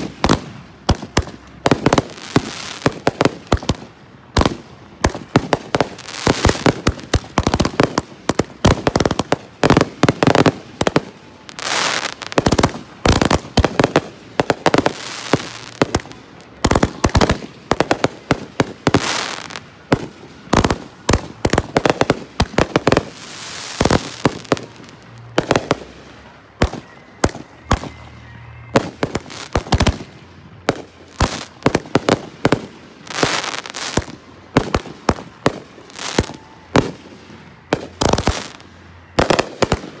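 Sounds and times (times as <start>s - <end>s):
fireworks bangs: 0.0s - 40.0s
fireworks crackling: 0.0s - 40.0s.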